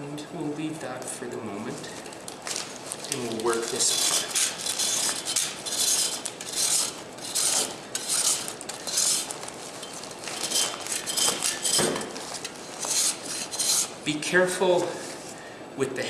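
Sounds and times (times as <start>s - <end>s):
rasp scraping plaster cast: 3.0s - 14.0s.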